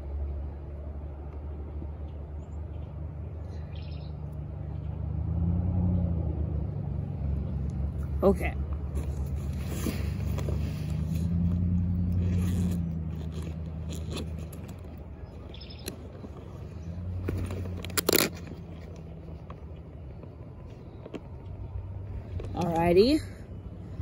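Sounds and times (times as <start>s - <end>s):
close rustles and scrapes: 8.0s - 21.2s
sharp crunch: 17.2s - 18.9s.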